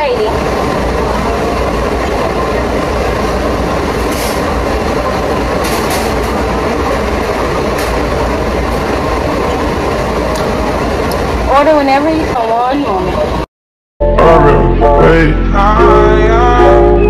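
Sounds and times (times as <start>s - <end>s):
kitchen equipment mechanical din: 3.9s - 9.4s
low rumble: 14.0s - 17.0s.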